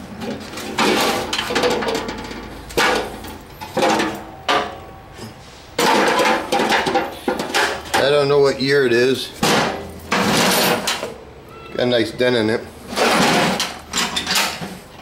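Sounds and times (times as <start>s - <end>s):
metal toolbox clanking and scraping: 0.0s - 8.3s, 9.4s - 11.2s, 12.8s - 15.0s
toolbox clatter: 0.2s - 4.8s, 5.8s - 8.2s, 9.4s - 11.2s, 12.9s - 14.8s.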